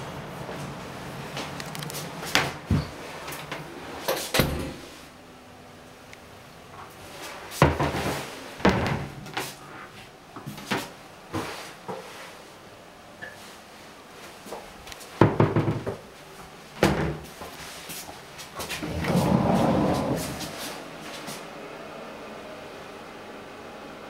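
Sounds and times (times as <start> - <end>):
cabinet doors opening and shutting: 4.3 - 4.9, 18.7 - 20.6.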